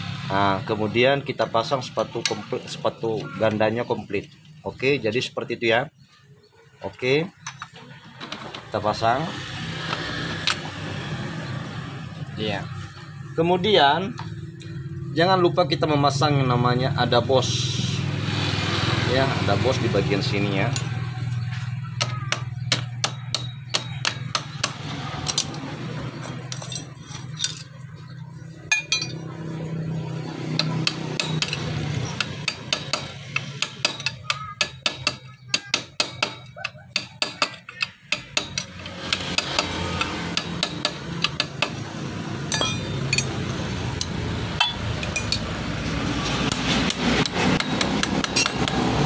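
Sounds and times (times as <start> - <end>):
hammer tapping metal punch: 22.0 - 25.4, 30.6 - 41.8.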